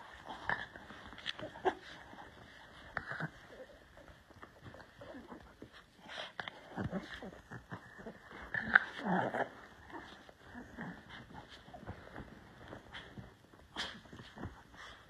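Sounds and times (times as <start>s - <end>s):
dogs scuffling on bedding: 8.1s - 15.0s.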